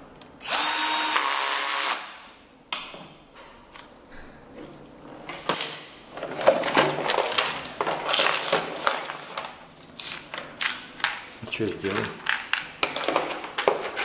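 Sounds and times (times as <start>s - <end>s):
plastic bag rustling: 6.1s - 14.0s
small parts rattling in box: 6.2s - 9.5s.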